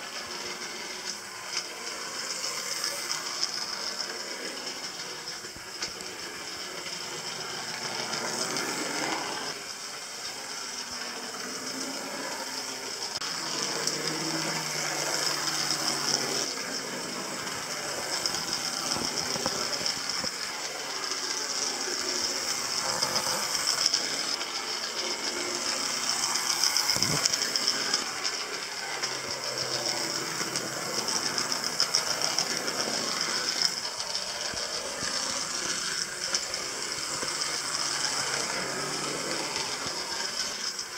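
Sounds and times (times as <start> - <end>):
electric motor whirring: 0.0 - 40.9
toy train wheels rattling on rails: 0.0 - 40.9.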